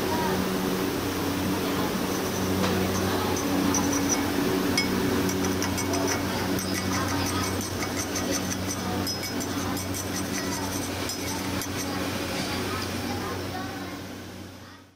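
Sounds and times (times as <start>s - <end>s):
steady low hum: 0.0s - 14.9s
welding arc crackling: 1.4s - 13.3s.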